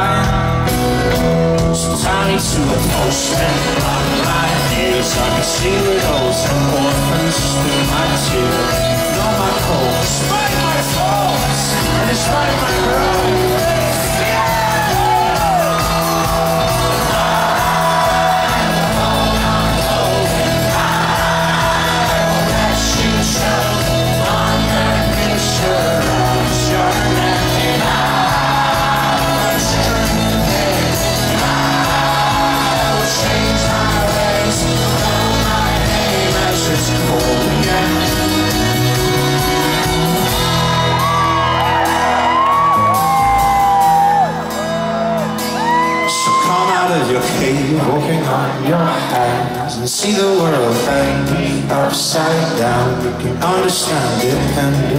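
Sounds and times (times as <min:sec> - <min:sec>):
banjo: 0:00.0 - 0:41.8
folk-rock band playing: 0:00.0 - 0:54.9
crowd shouting and whooping: 0:02.1 - 0:49.9.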